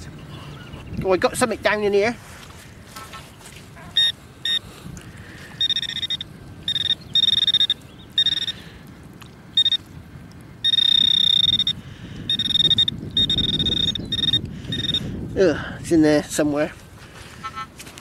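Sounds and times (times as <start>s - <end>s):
metal detector beeping: 4.0s - 4.6s, 5.6s - 8.6s, 9.6s - 9.9s, 10.6s - 15.1s.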